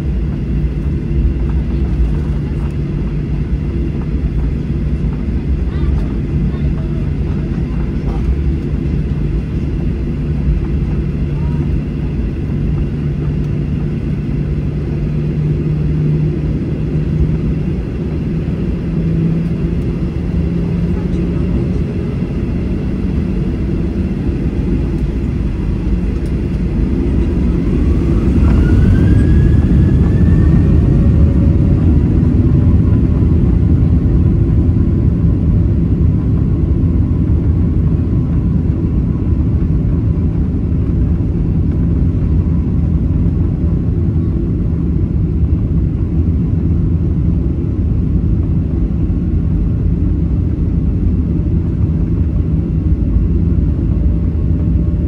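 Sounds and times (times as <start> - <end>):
jet engines low rumble: 0.0 - 55.0
engine whine rising in pitch: 13.4 - 34.9.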